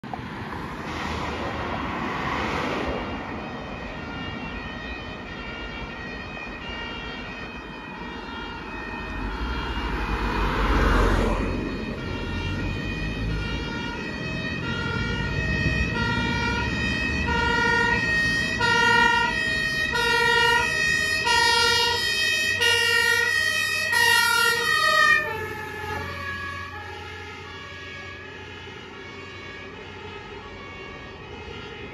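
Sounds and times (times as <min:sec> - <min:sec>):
passing cars whooshing: 0:00.0 - 0:04.5, 0:08.7 - 0:22.7
two-tone fire engine siren: 0:00.0 - 0:31.9.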